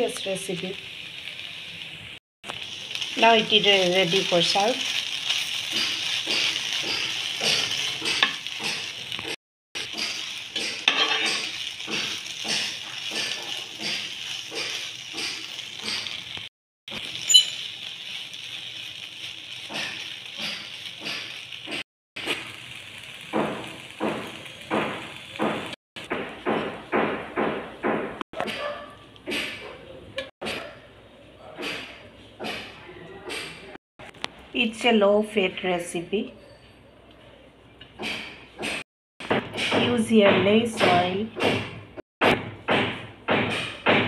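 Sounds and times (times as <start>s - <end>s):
vegetables sizzling in a pan: 0.0s - 25.8s
metal spoon scraping pan: 10.0s - 16.2s
spoon clinking on pan: 17.3s - 17.6s.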